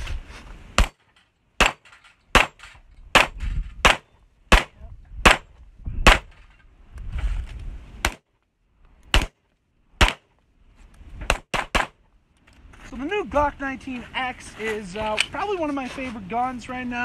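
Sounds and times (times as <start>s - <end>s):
pistol shots: 0.8s - 1.0s, 1.6s - 6.3s, 9.1s - 9.4s, 10.0s - 10.3s, 11.3s - 12.0s.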